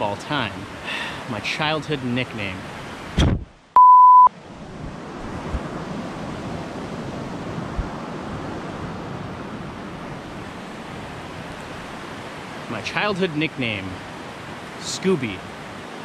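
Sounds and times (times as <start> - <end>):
wind on microphone: 3.1 - 3.5, 4.5 - 11.8.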